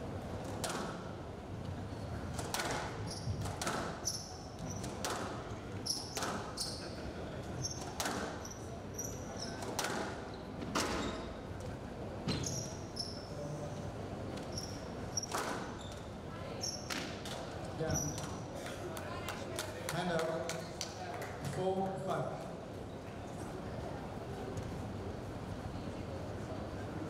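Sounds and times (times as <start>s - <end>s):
squash ball hitting rackets and walls: 2.4s - 6.5s, 9.6s - 11.0s, 15.2s - 15.7s
shoes squeaking on court floor: 3.0s - 5.0s, 5.8s - 9.7s, 10.3s - 11.4s, 12.3s - 13.3s, 14.4s - 16.9s, 17.8s - 18.4s.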